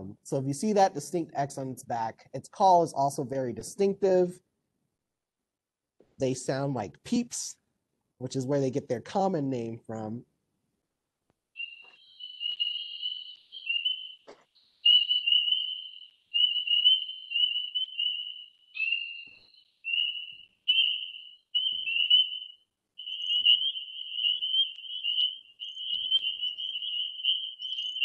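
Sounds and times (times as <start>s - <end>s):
spring peepers chorus: 11.6s - 28.0s.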